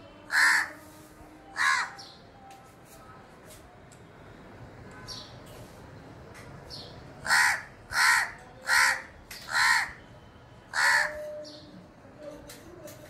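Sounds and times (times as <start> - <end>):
crow cawing: 0.3 - 0.8, 1.6 - 2.0, 7.2 - 10.0, 10.7 - 11.3.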